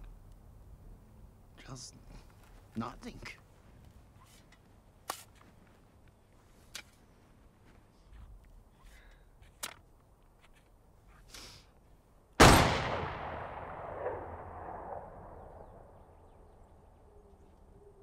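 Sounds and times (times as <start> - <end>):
pistol shot with echo: 12.4 - 16.0.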